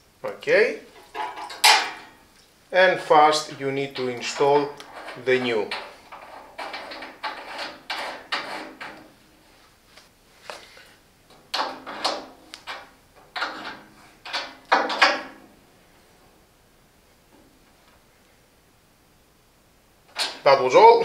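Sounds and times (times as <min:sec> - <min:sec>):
spanner scraping on metal valve: 0:00.9 - 0:02.1, 0:03.8 - 0:09.2, 0:11.5 - 0:15.3.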